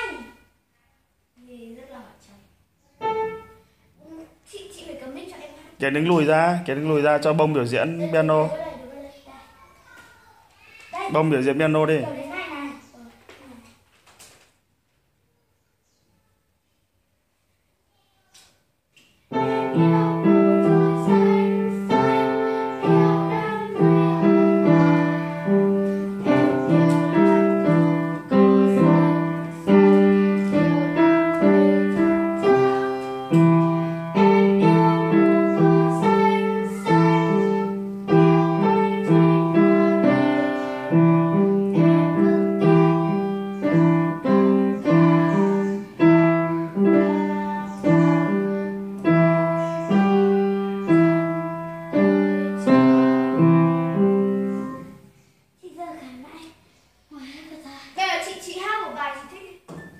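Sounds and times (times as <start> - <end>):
upright piano playing: 3.0 - 3.6, 19.3 - 55.0.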